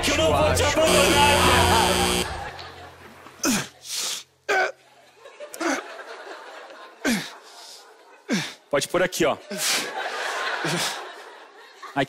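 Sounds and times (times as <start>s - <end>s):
audience laughter: 1.0s - 3.4s, 4.9s - 8.5s, 9.4s - 12.0s.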